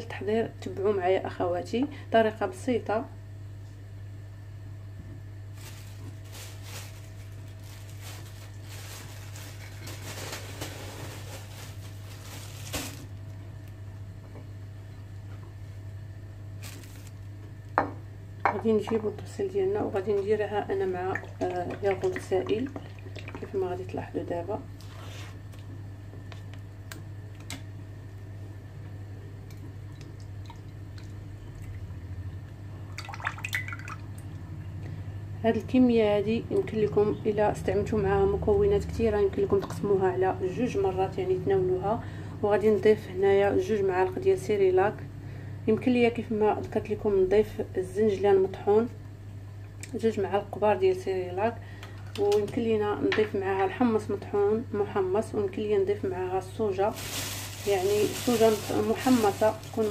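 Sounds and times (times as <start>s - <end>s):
steady low hum: 0.0s - 59.9s
kitchen items rustling and knocking: 5.6s - 13.1s, 56.9s - 59.9s.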